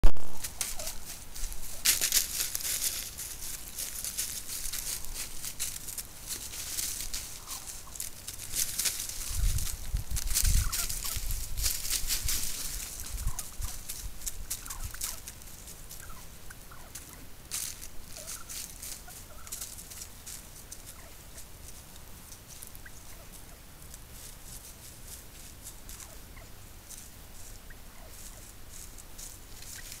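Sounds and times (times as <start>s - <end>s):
rustling of dry leaves: 0.2s - 30.0s
turkey calls: 0.4s - 30.0s.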